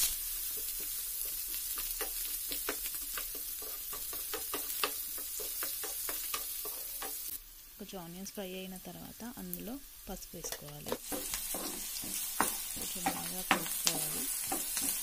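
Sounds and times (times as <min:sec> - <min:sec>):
onions sizzling in oil: 0:00.0 - 0:15.0
spatula scraping and tapping pan: 0:00.4 - 0:07.4, 0:10.4 - 0:15.0.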